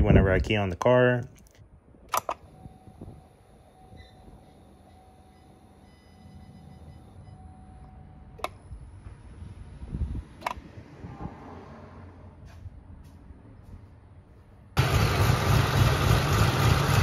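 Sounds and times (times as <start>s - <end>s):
low electrical hum: 0.0s - 10.4s
sharp clicks: 1.4s - 2.5s.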